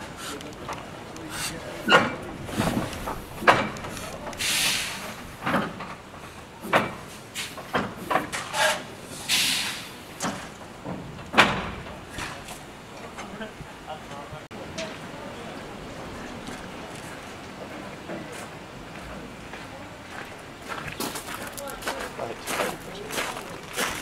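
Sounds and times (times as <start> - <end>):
steam hissing blasts: 0.0 - 0.4, 1.3 - 5.5, 6.3 - 10.2
metallic clanks and knocks: 1.8 - 4.4, 5.0 - 8.9, 10.2 - 13.4.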